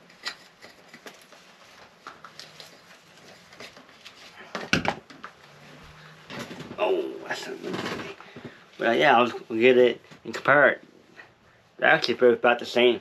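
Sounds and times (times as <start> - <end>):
rustling while rummaging: 0.0 - 8.6.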